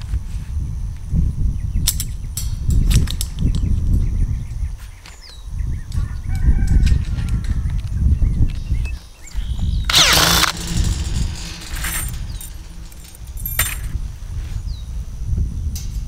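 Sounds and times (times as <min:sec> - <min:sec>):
cordless drill whirring: 0:09.9 - 0:13.3
low rumble: 0:09.9 - 0:14.3.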